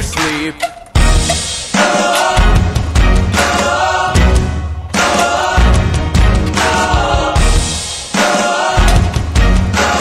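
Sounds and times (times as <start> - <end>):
song with singing and drums: 0.0 - 10.0.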